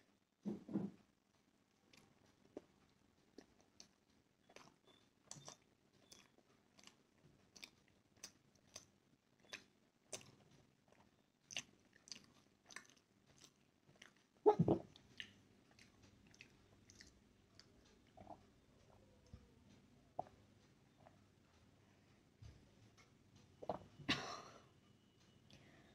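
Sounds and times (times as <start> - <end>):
person chewing: 3.4 - 18.9.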